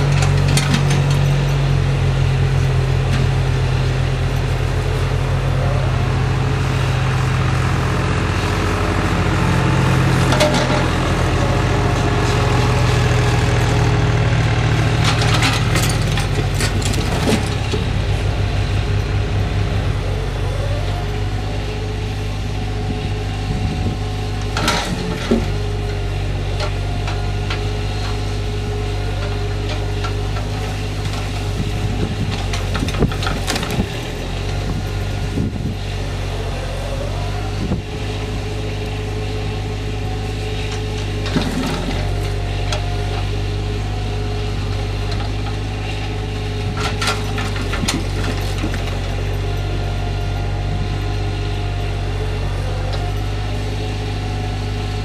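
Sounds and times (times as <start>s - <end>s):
diesel engine running: 0.0s - 55.0s
hydraulic whine: 0.0s - 55.0s
logs knocking and clunking: 10.2s - 18.1s, 44.6s - 49.2s.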